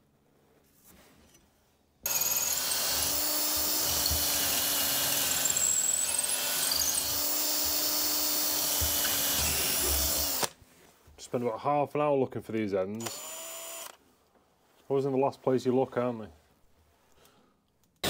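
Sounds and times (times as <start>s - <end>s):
cordless drill boring wood: 2.1s - 10.6s, 13.0s - 14.0s.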